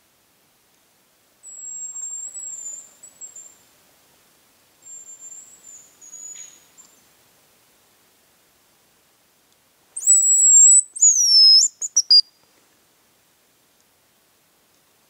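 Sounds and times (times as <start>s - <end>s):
high thin bird whistles: 10.0s - 12.3s.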